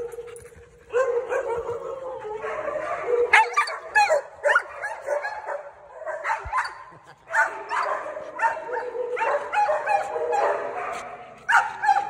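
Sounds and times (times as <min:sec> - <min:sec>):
dog yipping: 0:03.3 - 0:05.5.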